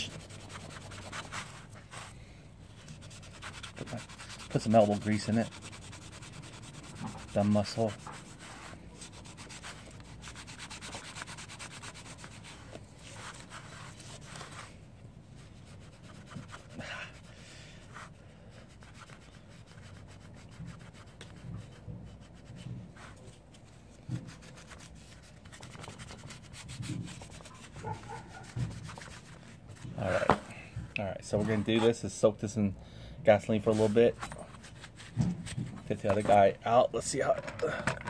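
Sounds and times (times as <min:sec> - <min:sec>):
scrub pad scrubbing metal: 0:00.0 - 0:02.0, 0:02.8 - 0:14.4, 0:24.2 - 0:30.1.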